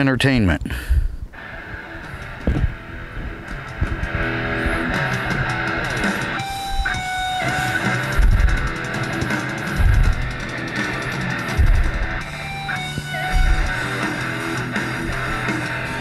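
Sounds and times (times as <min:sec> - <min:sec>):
strummed electric guitar: 0:01.3 - 0:16.0
heavy bass hits: 0:03.7 - 0:16.0.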